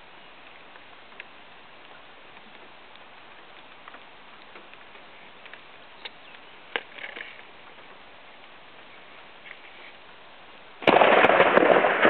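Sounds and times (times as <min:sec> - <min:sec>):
raindrops ticking: 0:00.0 - 0:08.9
light rain hiss: 0:00.0 - 0:12.0.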